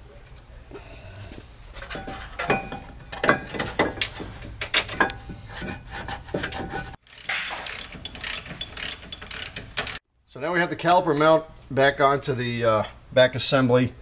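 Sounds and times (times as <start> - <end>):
metal bracket clinking: 7.2 - 10.0.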